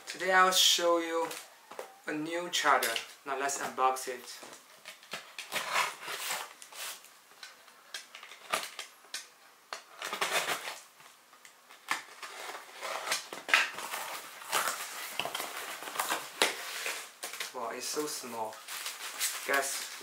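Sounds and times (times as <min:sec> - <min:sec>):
cardboard rustling: 0:04.4 - 0:07.0, 0:11.8 - 0:20.0.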